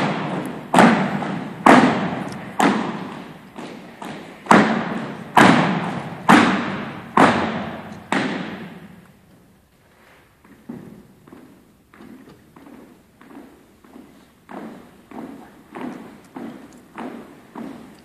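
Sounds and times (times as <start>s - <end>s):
heavy thuds echoing in a gym: 0.0s - 9.2s, 10.4s - 18.0s.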